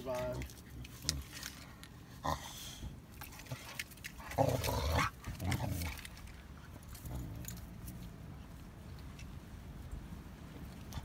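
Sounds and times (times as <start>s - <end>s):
dogs snarling and growling: 0.3s - 8.0s.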